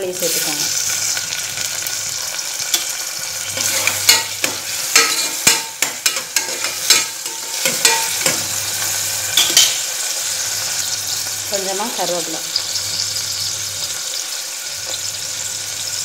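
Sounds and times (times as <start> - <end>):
vegetables sizzling in hot oil: 0.0 - 16.0
utensil scraping and knocking a pot: 3.5 - 9.8.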